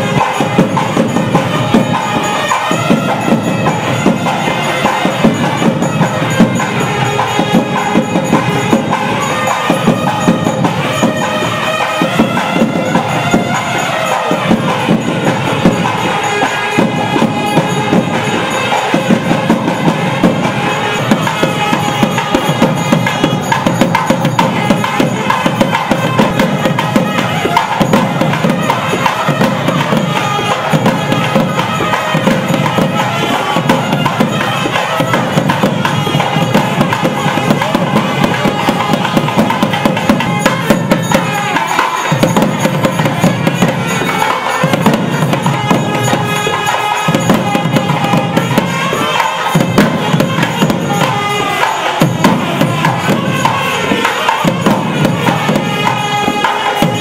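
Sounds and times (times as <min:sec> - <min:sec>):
quick drumming: 0:00.0 - 0:57.0.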